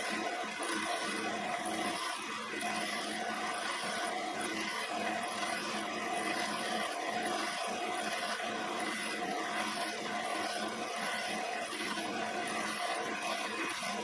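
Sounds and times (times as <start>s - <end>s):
grinder motor hum: 0.0s - 14.0s.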